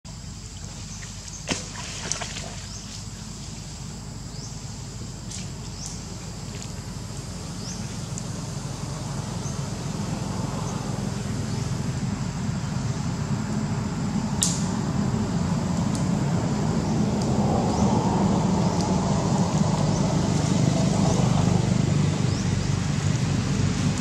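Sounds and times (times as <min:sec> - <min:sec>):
low engine-like drone: 0:00.1 - 0:24.0.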